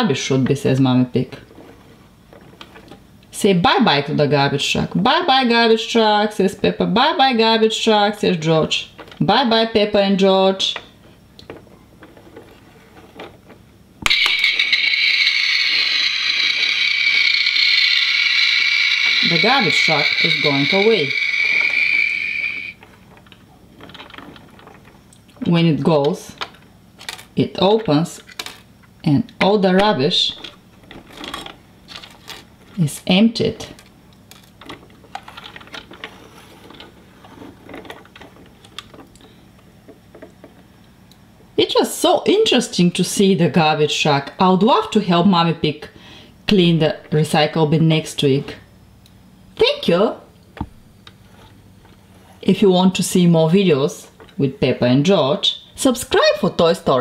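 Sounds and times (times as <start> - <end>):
toy truck electronic sound effect: 14.0 - 22.8.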